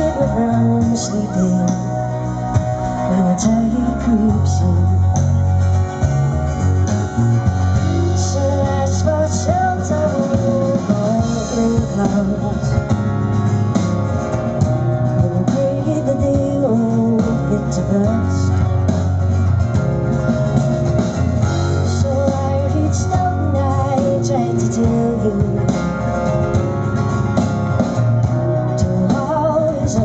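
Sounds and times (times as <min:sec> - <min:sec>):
drums: 0:00.0 - 0:30.0
electric guitars: 0:00.0 - 0:30.0
strummed acoustic guitar: 0:00.0 - 0:30.0
woman singing: 0:15.2 - 0:18.5, 0:21.9 - 0:26.0, 0:28.7 - 0:30.0.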